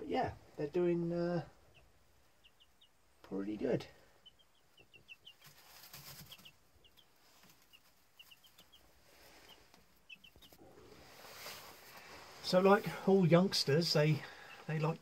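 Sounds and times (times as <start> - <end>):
chicks peeping: 0.5 - 15.0
rustling in straw: 5.1 - 14.5.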